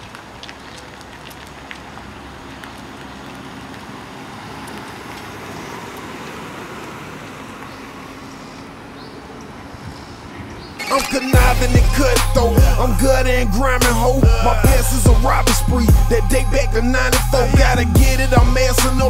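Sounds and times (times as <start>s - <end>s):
car engine running: 10.8s - 19.0s.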